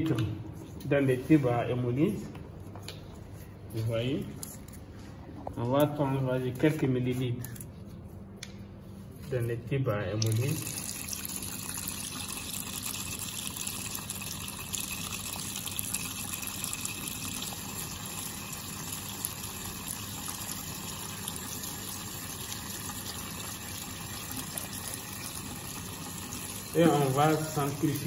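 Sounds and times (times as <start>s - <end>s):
tap water running into sink: 10.2s - 28.0s.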